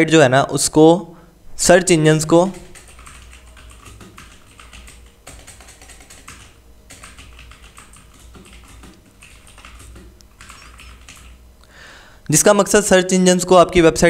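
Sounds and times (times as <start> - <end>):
keyboard keystroke clicks: 2.8 - 11.4.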